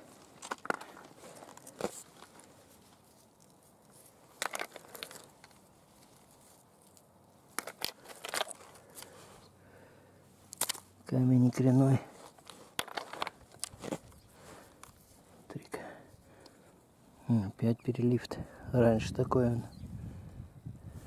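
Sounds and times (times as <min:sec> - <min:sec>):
stones knocking together: 0:00.2 - 0:02.4, 0:04.3 - 0:05.6, 0:07.5 - 0:08.8, 0:12.2 - 0:14.2.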